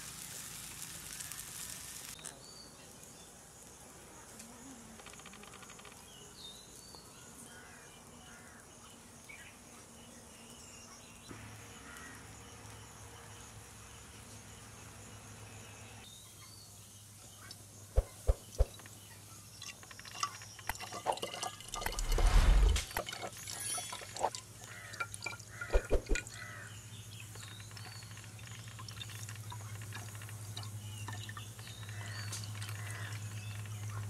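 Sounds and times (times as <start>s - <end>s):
water poured into glass bottle: 19.5s - 26.3s.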